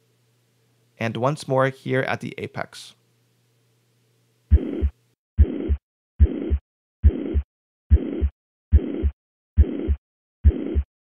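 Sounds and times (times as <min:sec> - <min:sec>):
heartbeat: 0:04.5 - 0:10.9
high-pitched heart murmur: 0:04.5 - 0:10.9.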